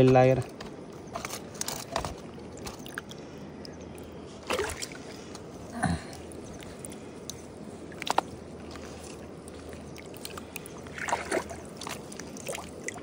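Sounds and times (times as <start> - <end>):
water sloshing and trickling: 0.0 - 13.0
short water splashes: 2.5 - 5.4, 6.1 - 13.0.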